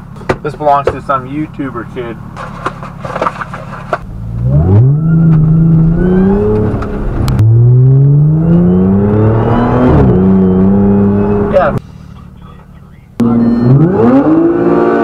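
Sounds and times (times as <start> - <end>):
car engine accelerating hard: 4.0 - 11.8, 13.2 - 15.0.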